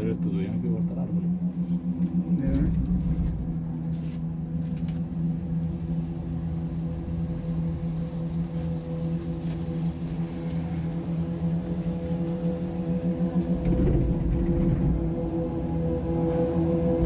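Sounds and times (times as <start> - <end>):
cable car mechanical hum: 0.0 - 17.0.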